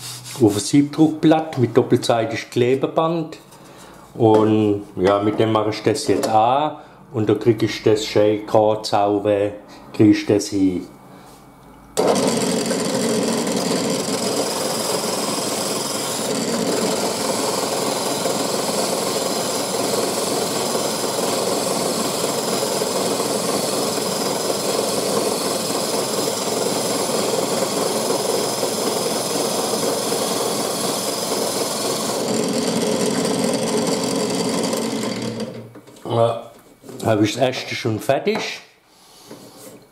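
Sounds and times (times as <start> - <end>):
wood rubbing on sandpaper: 0.0 - 0.7
drill press running: 12.0 - 35.8.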